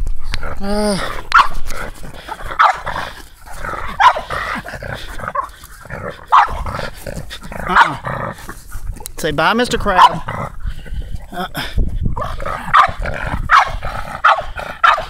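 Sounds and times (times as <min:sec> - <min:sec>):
dog grumbling: 0:00.2 - 0:09.1, 0:10.0 - 0:15.0
small dog barking: 0:02.6 - 0:02.9, 0:03.9 - 0:04.3, 0:06.3 - 0:06.6, 0:07.7 - 0:08.0, 0:10.0 - 0:10.3, 0:12.7 - 0:15.0.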